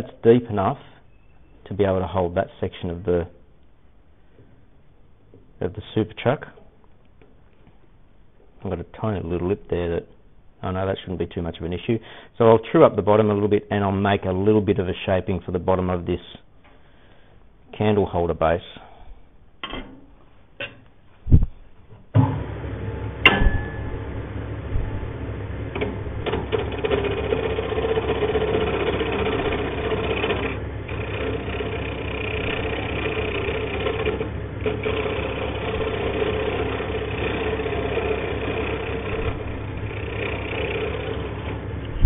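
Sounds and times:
wood lathe running: 24.4 - 42.0
turning tool cutting wood: 25.7 - 42.0.

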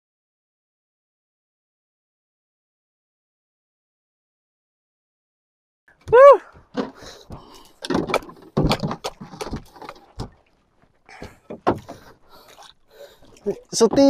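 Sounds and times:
knocks and thumps on a boat: 6.0 - 14.0.

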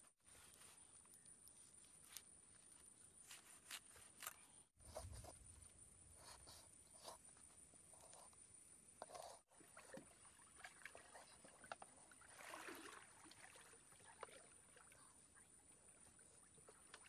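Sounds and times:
faint flowing river water: 6.7 - 17.0.

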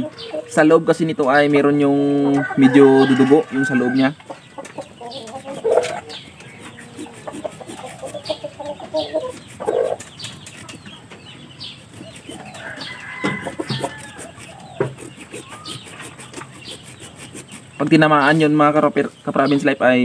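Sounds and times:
chickens clucking: 0.0 - 20.0
hacksaw sawing: 5.3 - 10.8, 11.8 - 18.6.

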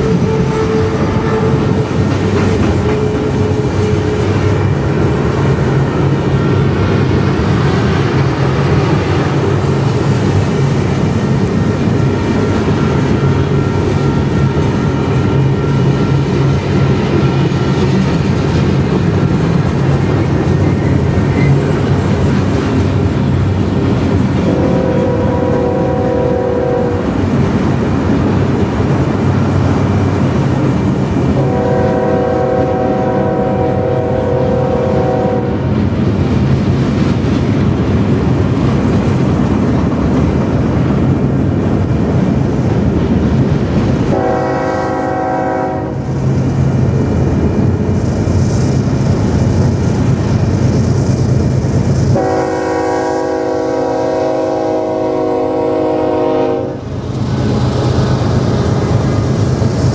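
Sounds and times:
locomotive horn: 0.0 - 2.0, 2.6 - 4.6, 24.4 - 27.2, 31.3 - 35.6, 44.1 - 46.1, 52.1 - 56.9
diesel train engine drone: 0.0 - 59.9
train wheel and rail noise: 0.0 - 59.9.

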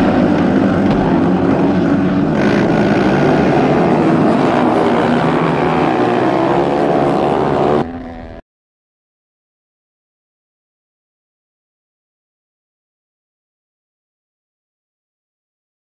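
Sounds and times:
motorcycle engines revving high: 0.0 - 8.4.

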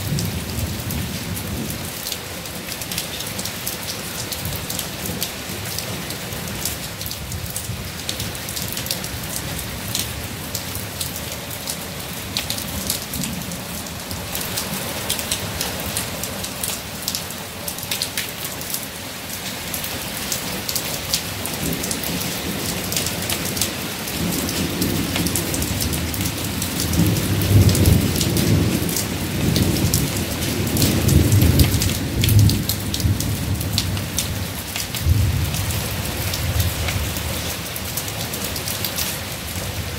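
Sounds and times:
rain on wet pavement: 0.0 - 39.9
thunder rumbling: 21.6 - 37.2.

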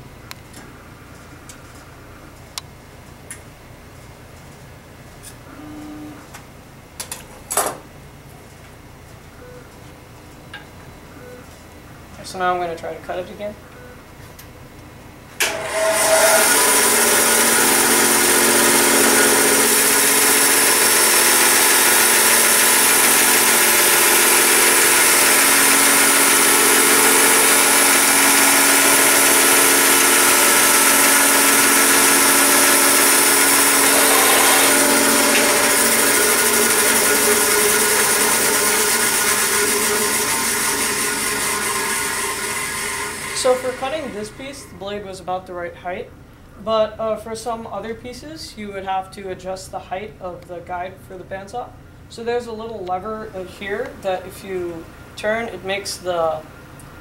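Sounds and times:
bandsaw cutting plastic: 15.4 - 44.4.

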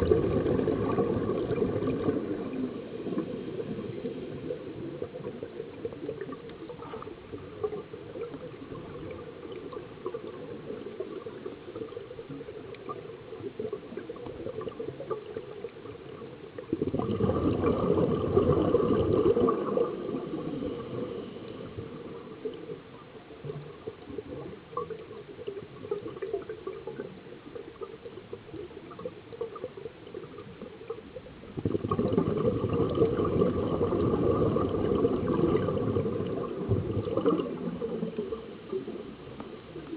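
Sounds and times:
diver exhaling bubbling air: 0.0 - 4.7, 16.8 - 22.2, 31.6 - 38.4
low underwater hiss with crackling: 0.0 - 39.9.

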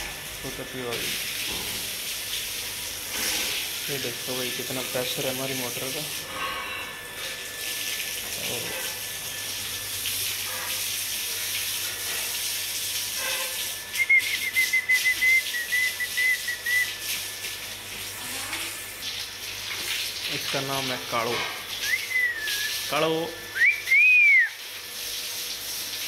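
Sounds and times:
hose water spraying on concrete: 0.0 - 6.6, 7.2 - 26.0
wavering whistle-like tone: 13.9 - 17.0, 21.8 - 22.8, 23.5 - 24.6.

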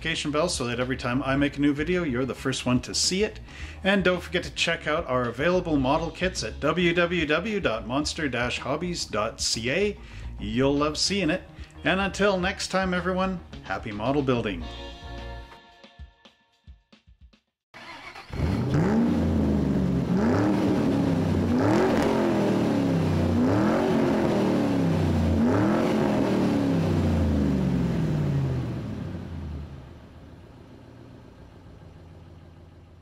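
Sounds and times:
car engine revving: 17.8 - 33.0.

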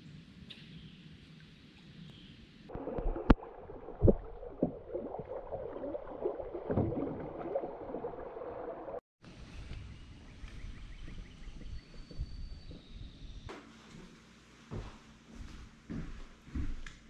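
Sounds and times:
river water splashing on hull: 2.7 - 9.0.

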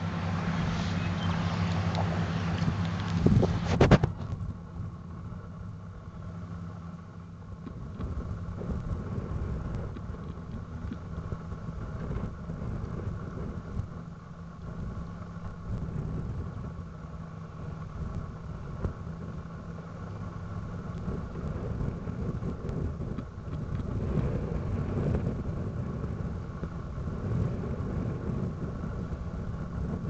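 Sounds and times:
grader diesel engine running: 0.0 - 30.0.

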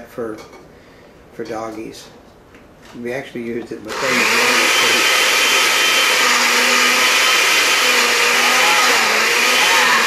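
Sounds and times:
blender running: 3.9 - 10.0.

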